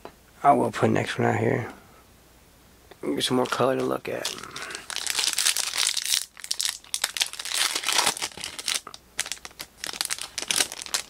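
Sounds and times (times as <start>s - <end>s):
foil wrapper tearing and crinkling: 3.4s - 11.0s.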